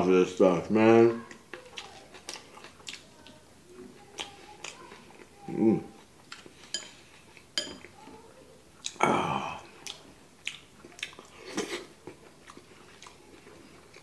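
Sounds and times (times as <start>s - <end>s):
chewing: 1.2s - 8.2s, 9.6s - 14.0s
chopsticks clinking on bowls: 6.4s - 8.0s
person humming: 9.0s - 9.7s.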